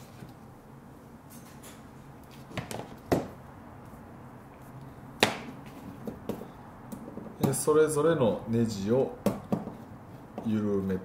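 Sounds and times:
sharp knocks: 5.2s - 6.4s.

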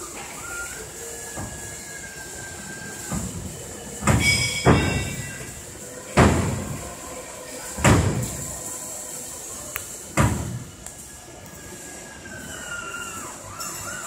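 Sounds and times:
knocks and metallic bangs: 3.1s - 6.8s, 7.8s - 8.5s, 10.2s - 10.7s.

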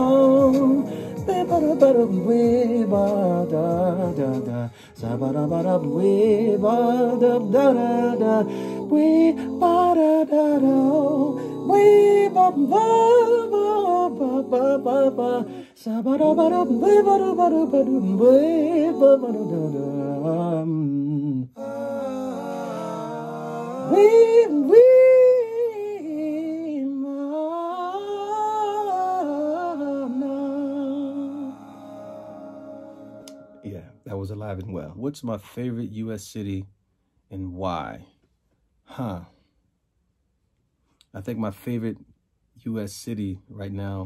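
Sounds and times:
backing track of sustained chords: 0.0s - 20.4s, 21.6s - 24.8s, 28.6s - 34.2s
man singing wordless vocal runs: 0.0s - 21.3s.

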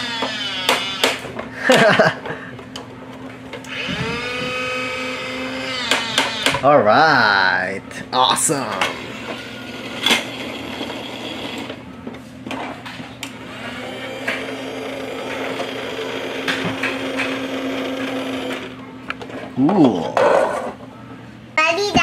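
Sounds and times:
toy motor whirring: 0.0s - 1.3s, 3.6s - 6.6s, 9.0s - 11.8s, 13.4s - 18.8s.

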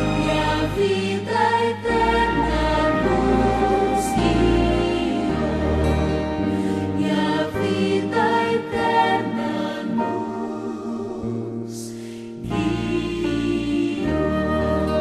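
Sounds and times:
instrumental backing: 0.0s - 10.9s
voices singing in harmony: 0.0s - 15.0s.

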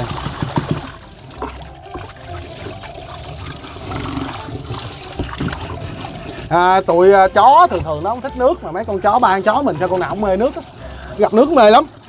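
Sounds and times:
hose water splashing into a tub: 0.0s - 12.0s.

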